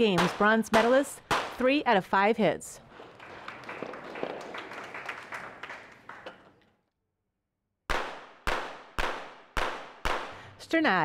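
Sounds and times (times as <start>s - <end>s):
spectators clapping: 3.0s - 6.6s
pistol shots: 7.9s - 10.4s.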